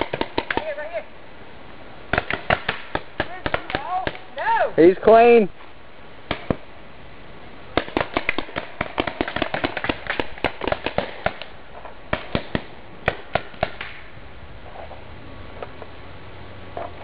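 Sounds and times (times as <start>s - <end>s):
paintball markers firing: 0.0s - 0.7s, 7.8s - 11.5s.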